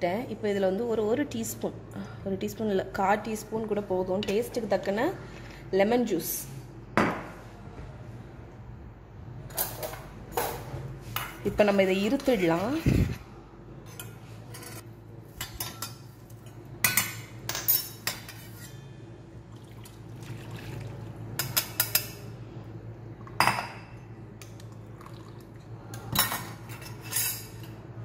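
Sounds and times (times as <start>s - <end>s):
tea pouring through strainer: 19.5s - 21.0s, 24.6s - 25.6s.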